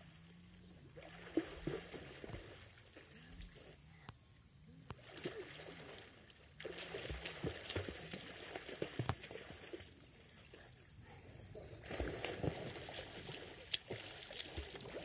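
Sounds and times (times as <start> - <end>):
swimmers splashing in water: 5.0 - 9.9, 11.8 - 15.0.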